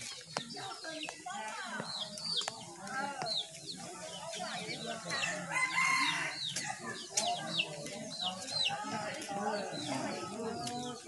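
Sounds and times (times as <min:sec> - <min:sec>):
rooster crowing: 0:05.2 - 0:06.4.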